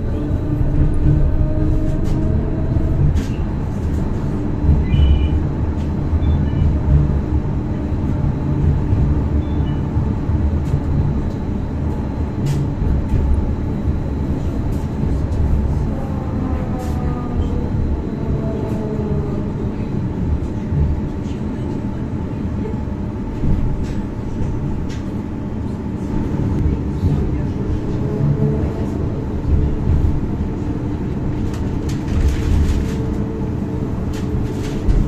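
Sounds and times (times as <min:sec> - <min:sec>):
tram wheels rumbling on rail: 0:00.0 - 0:35.0.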